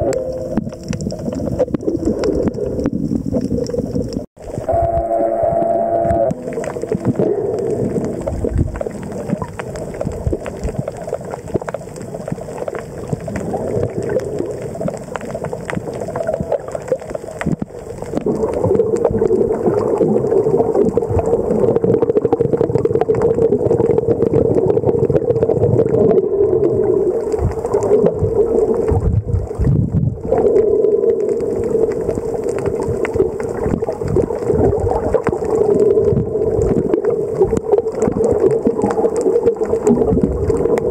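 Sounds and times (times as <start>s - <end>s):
underwater water rushing: 0.0s - 40.9s
steady drone: 4.7s - 8.0s.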